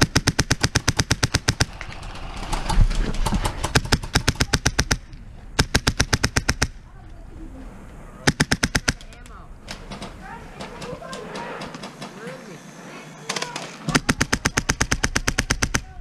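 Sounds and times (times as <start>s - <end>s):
airsoft rifle full-auto fire: 0.0s - 2.6s, 3.4s - 5.0s, 5.6s - 6.8s, 8.3s - 9.1s, 13.3s - 16.0s.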